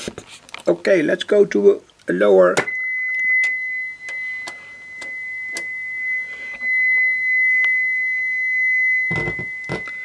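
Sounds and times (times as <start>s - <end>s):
high-pitched sine test tone: 2.6s - 10.0s.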